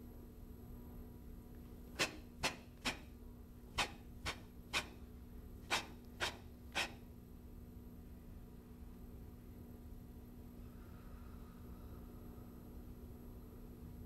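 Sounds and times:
sharp arm swishes: 0:02.0 - 0:03.1, 0:03.8 - 0:05.0, 0:05.7 - 0:07.0.

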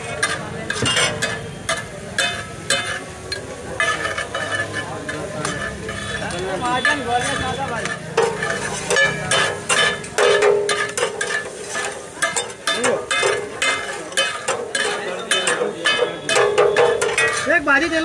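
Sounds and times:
metal spatulas scraping griddles: 0:00.0 - 0:17.7.

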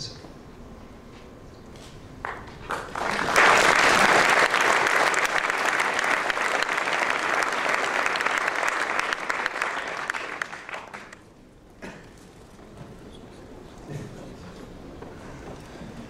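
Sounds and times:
audience applauding: 0:02.2 - 0:11.3.

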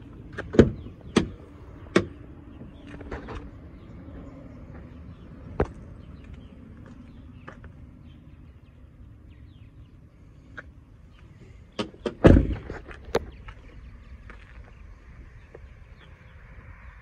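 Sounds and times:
car door thump: 0:11.8 - 0:12.7.

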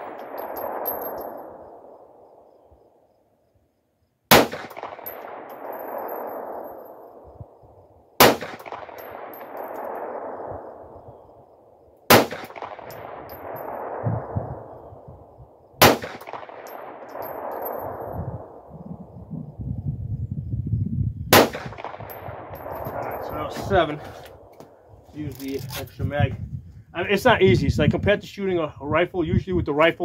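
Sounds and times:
pistol shots with echo: 0:04.3 - 0:07.6, 0:08.2 - 0:11.2, 0:12.1 - 0:15.0, 0:15.8 - 0:18.6, 0:21.3 - 0:24.5.

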